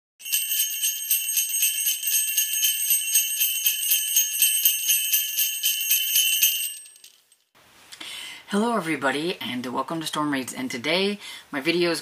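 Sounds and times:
sleigh bells jingling: 0.2 - 7.4.

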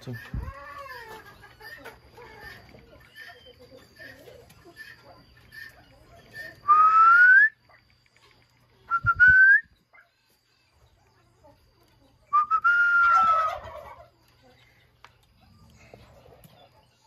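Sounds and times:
person whistling: 6.6 - 7.6, 8.9 - 9.7, 12.3 - 13.1.

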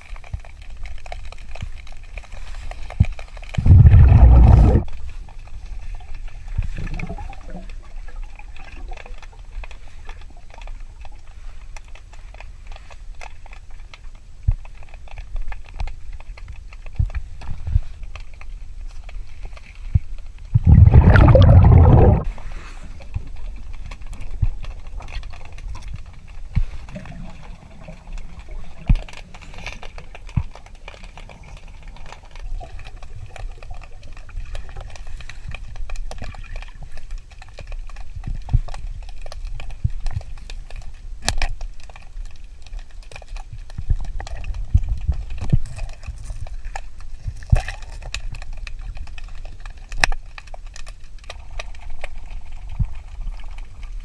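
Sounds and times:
underwater clicks and knocks: 2.9 - 5.4, 19.5 - 22.3, 23.0 - 54.0
underwater regulator bubbles: 3.6 - 5.2, 6.5 - 9.2, 20.5 - 25.2, 26.0 - 35.4.

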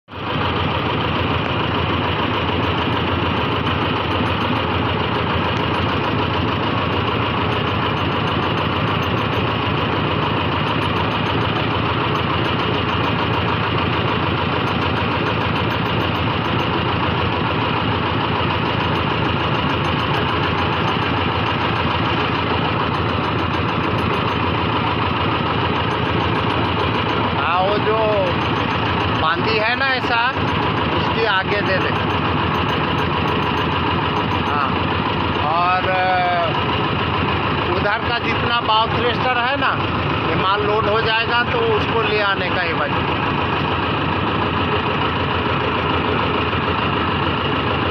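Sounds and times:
crane diesel engine running: 0.1 - 47.9.

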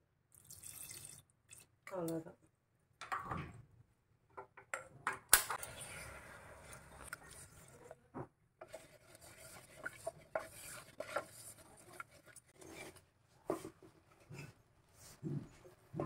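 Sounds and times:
wooden spatula stirring in pot: 5.7 - 16.0
scrapes and knocks against pot: 6.7 - 16.0.

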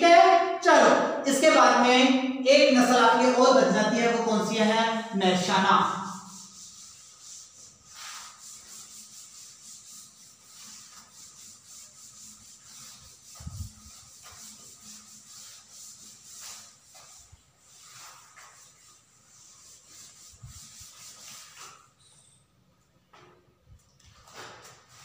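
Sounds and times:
duster rubbing a blackboard: 5.4 - 22.0.

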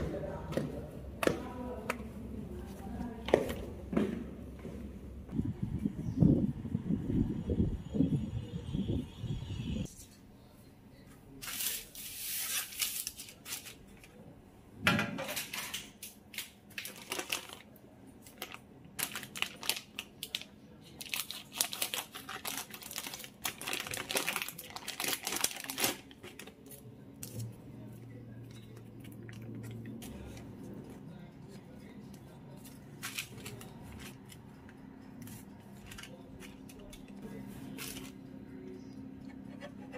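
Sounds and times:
packaging crinkling and rustling: 16.7 - 26.8.

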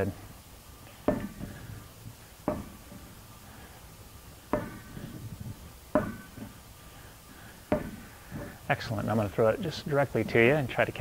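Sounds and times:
rubber ball thumping on carpet: 2.5 - 2.8, 7.7 - 8.0.

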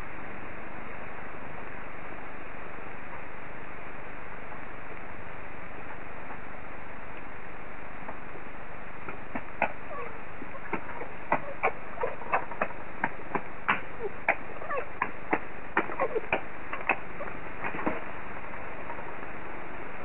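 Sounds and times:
heavy rain hissing: 0.0 - 20.0
foxes squeaking and chattering: 9.6 - 17.5.

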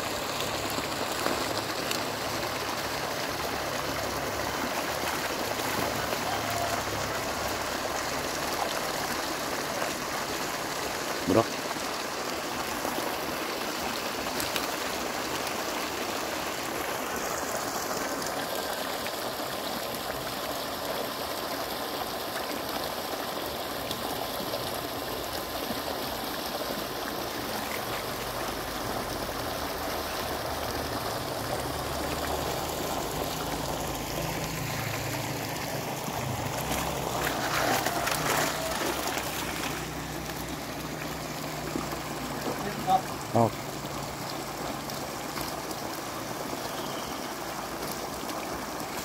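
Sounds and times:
water rushing: 0.0 - 49.0
water sloshing from wading: 30.0 - 45.8.

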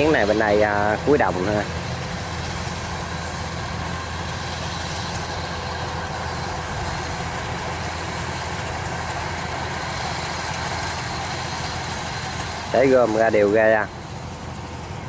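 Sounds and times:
combine harvester engine droning: 0.0 - 15.0.

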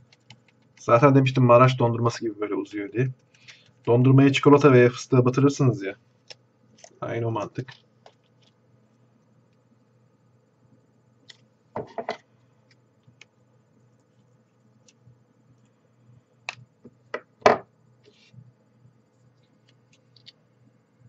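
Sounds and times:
plastic clicks and crinkles: 19.4 - 20.4.

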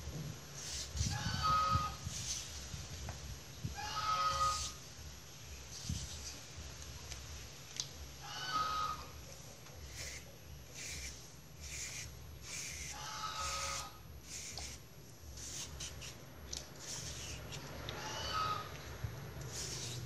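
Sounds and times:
slicer scraping banana: 0.6 - 2.6, 9.8 - 14.8, 15.4 - 16.2, 16.8 - 18.7, 19.4 - 20.0.

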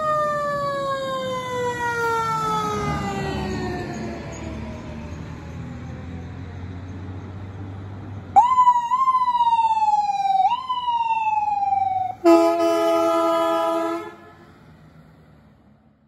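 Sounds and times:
ambulance siren: 0.0 - 6.7, 8.3 - 14.8
horn blast: 12.2 - 14.6.

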